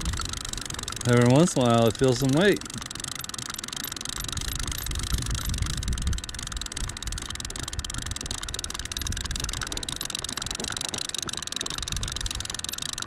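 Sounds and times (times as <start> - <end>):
wind buffeting microphone: 0.0 - 2.6, 4.2 - 10.0, 11.8 - 12.5.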